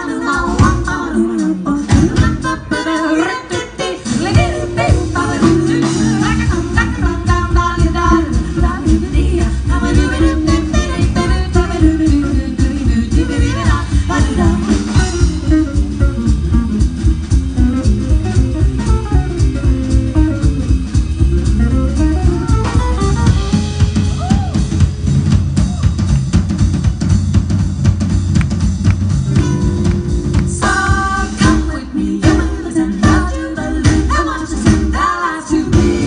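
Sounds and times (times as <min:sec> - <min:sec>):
people singing: 0:00.0 - 0:15.2, 0:30.5 - 0:36.0
drum kit beat: 0:00.0 - 0:36.0
plucked double bass: 0:04.2 - 0:35.0.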